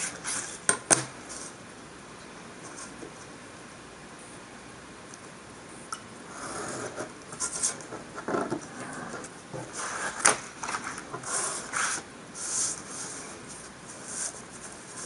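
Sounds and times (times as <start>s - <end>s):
paper and ruler rustling on mat: 9.6s - 15.0s.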